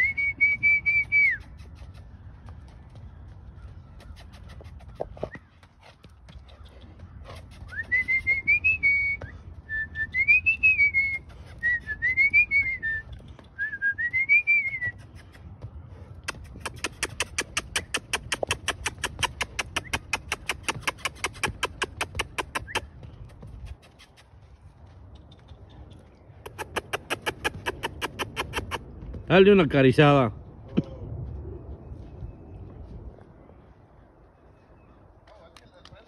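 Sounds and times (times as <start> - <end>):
person whistling: 0.0 - 1.5, 7.7 - 13.0, 13.6 - 15.0
fast sharp clicks: 16.2 - 22.8.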